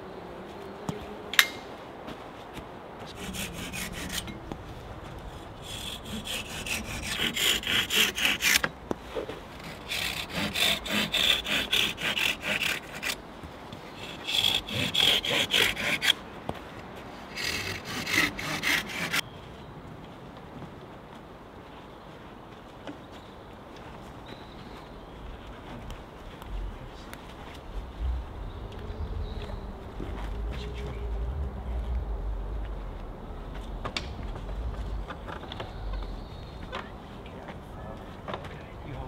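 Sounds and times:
hand saw cutting wood: 3.1 - 4.5, 5.6 - 8.7, 9.5 - 13.2, 14.0 - 16.2, 17.3 - 19.2.

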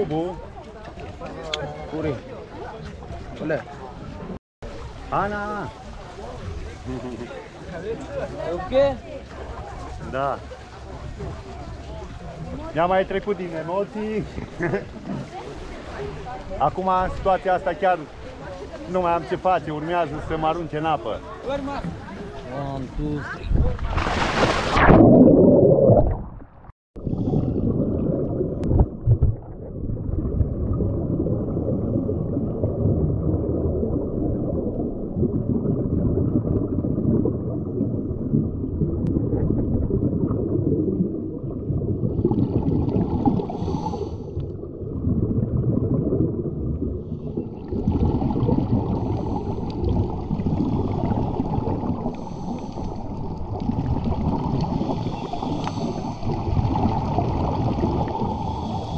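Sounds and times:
underwater rush of water and bubbles: 23.8 - 58.9
hissing bubbling: 24.6 - 58.9.

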